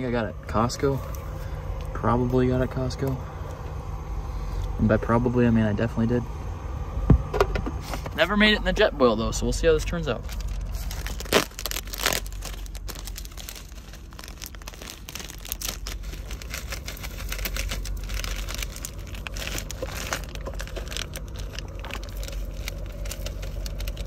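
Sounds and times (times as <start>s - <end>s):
steady low hum: 0.0s - 24.0s
plastic packaging crinkling: 10.2s - 24.0s.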